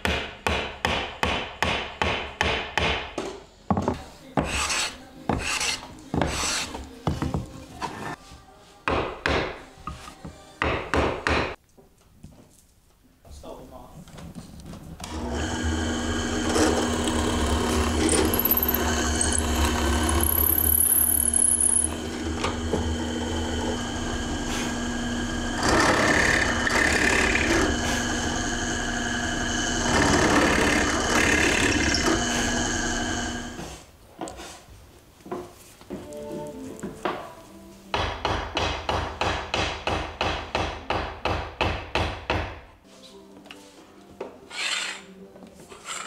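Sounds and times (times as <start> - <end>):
drill bit boring into wood: 15.1 - 33.6
drill press motor running: 15.1 - 33.6.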